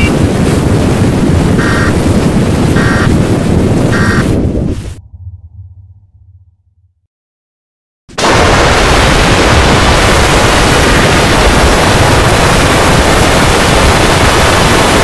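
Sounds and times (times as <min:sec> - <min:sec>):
harsh static noise: 0:01.6 - 0:02.0, 0:08.1 - 0:15.0.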